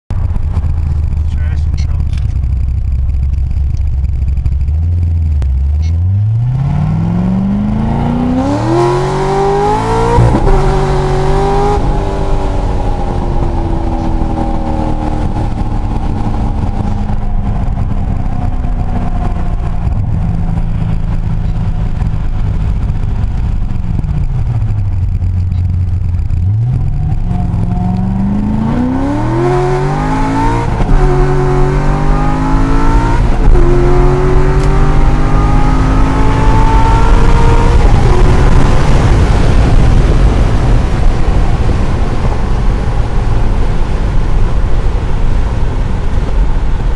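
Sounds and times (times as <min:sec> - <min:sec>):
car engine accelerating: 0:00.1 - 0:46.9.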